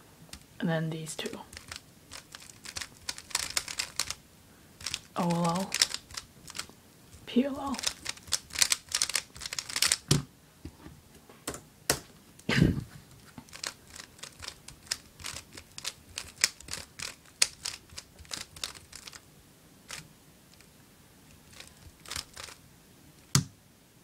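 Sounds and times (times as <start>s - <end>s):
puzzle cube clicking: 1.5s - 4.2s, 4.8s - 6.7s, 7.7s - 10.2s, 13.5s - 19.2s, 21.5s - 22.6s.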